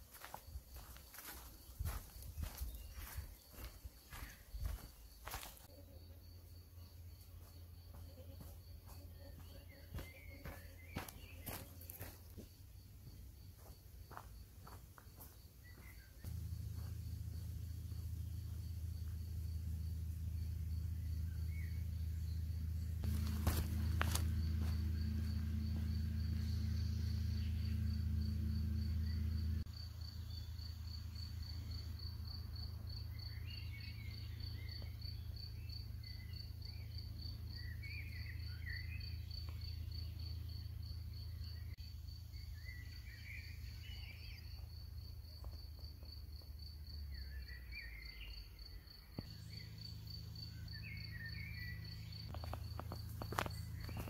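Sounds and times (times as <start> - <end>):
small birds chirping: 0.1 - 5.8, 8.9 - 29.5, 47.1 - 54.0
insect chirring: 0.1 - 54.0
low steady rumble: 16.1 - 34.7.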